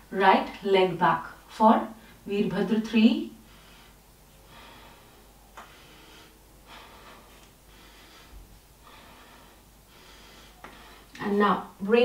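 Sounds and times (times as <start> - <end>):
woman breathing softly: 3.4 - 11.2.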